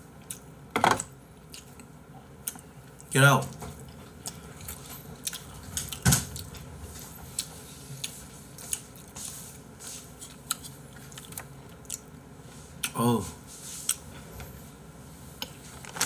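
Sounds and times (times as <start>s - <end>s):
person chewing: 0.2s - 12.2s, 12.8s - 13.0s, 13.7s - 14.1s.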